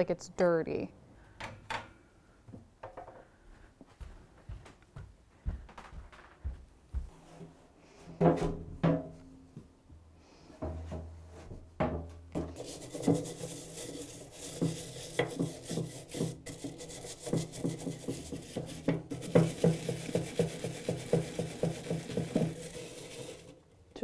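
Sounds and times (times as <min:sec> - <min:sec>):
plastic scraper scraping metal: 0:12.5 - 0:23.6.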